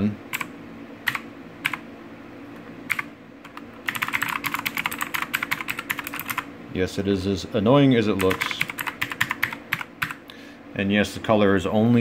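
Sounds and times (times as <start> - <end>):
mechanical keyboard typing: 0.3 - 1.8, 2.9 - 6.5, 8.2 - 10.2.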